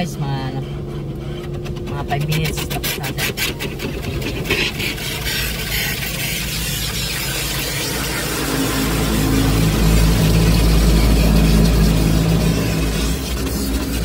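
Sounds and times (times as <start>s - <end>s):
car wash machinery drone: 0.0s - 14.0s
water spray hissing on car: 4.3s - 14.0s.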